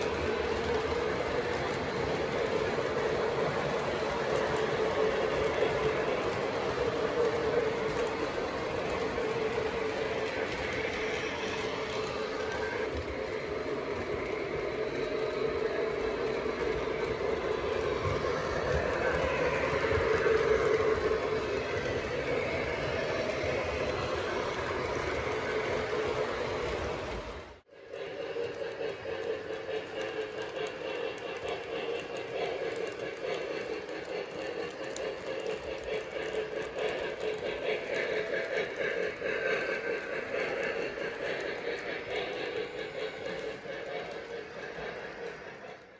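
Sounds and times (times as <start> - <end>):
model train running: 0.0 - 45.9.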